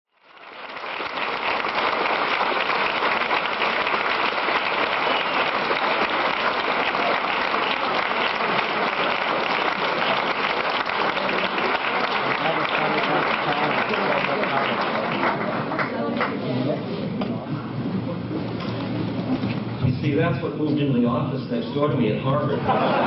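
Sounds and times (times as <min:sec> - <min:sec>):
audience applause: 0:00.1 - 0:16.4.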